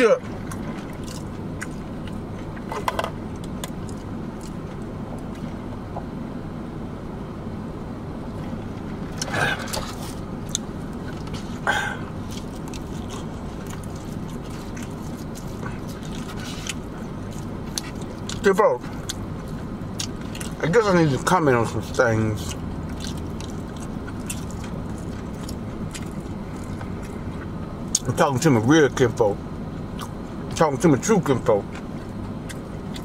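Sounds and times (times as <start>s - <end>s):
low hum in car cabin: 0.0s - 33.0s.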